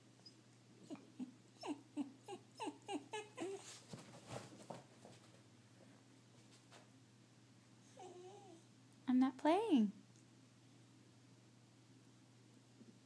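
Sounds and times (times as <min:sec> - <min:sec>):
dog whining: 0:00.2 - 0:03.8, 0:07.9 - 0:08.7
dog scuffling: 0:03.5 - 0:05.5.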